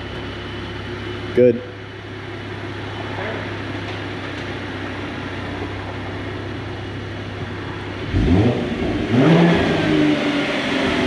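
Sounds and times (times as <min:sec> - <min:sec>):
car engine idling: 0:00.0 - 0:11.0
engine revving blips: 0:08.0 - 0:11.0.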